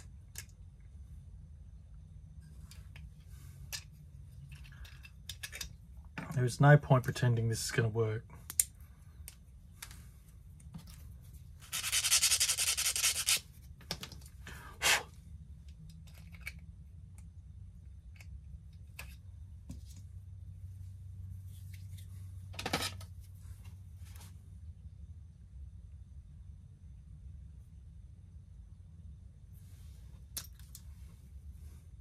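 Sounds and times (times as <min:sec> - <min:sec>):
hand rubbing on small part: 0:10.8 - 0:13.7.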